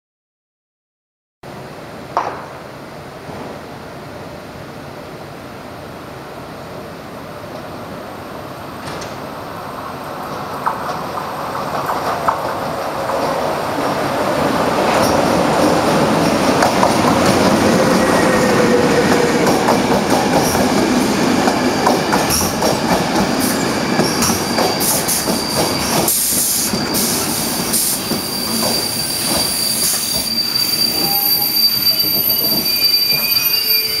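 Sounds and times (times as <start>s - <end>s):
train wheels on rails: 7.4s - 34.0s
high wheel or brake squeal: 23.5s - 34.0s.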